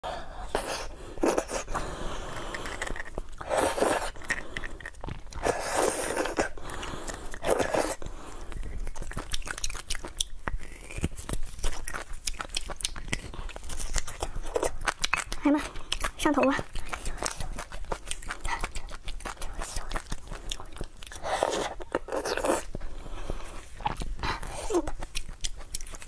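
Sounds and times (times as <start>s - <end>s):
wet mouth sounds: 0.5s - 26.0s
smacking chewing clicks: 8.5s - 21.2s, 24.9s - 26.0s.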